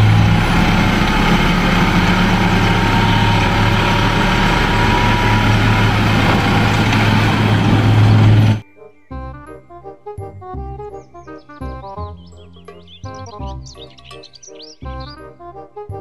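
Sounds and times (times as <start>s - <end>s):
diesel engine running: 0.0s - 8.6s
soil sliding out: 0.0s - 8.6s.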